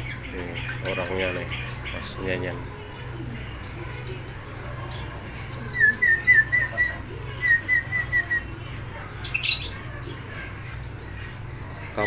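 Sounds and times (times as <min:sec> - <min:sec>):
canary chirping: 0:00.0 - 0:12.0.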